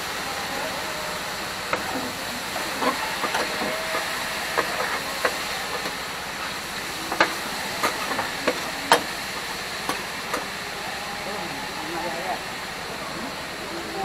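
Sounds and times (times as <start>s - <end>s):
skewers sizzling on griddle: 0.0s - 14.0s
metal spatula scraping griddle: 2.7s - 6.5s.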